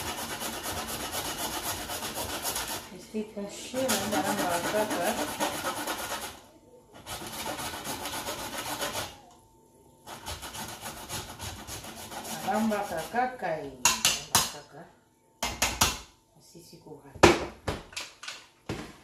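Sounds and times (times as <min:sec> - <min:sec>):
knife scraping meat in metal pot: 0:00.0 - 0:02.9, 0:03.7 - 0:06.4, 0:07.0 - 0:09.2, 0:10.0 - 0:13.2.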